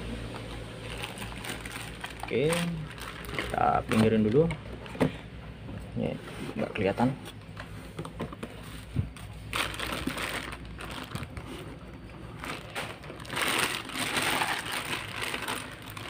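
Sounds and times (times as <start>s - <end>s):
plastic wrapping crinkling: 0.7s - 4.5s, 8.5s - 16.0s.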